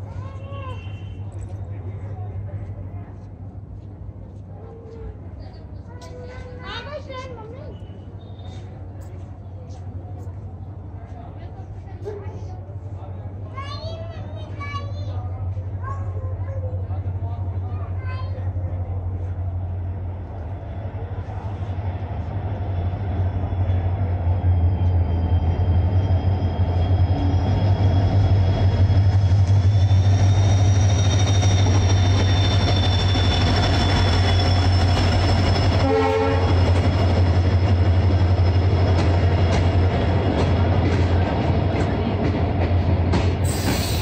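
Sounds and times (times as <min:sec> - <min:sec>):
diesel locomotive rumble: 0:00.0 - 0:44.0
train horn toot: 0:35.7 - 0:36.8.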